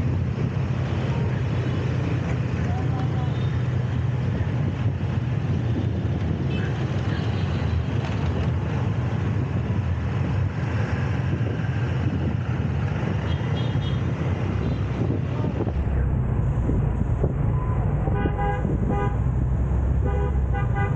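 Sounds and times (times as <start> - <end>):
city street traffic rumble: 0.0 - 20.9.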